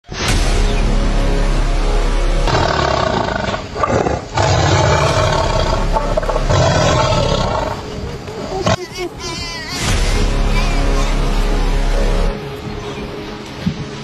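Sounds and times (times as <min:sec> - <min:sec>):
lions roaring: 0:02.5 - 0:07.9.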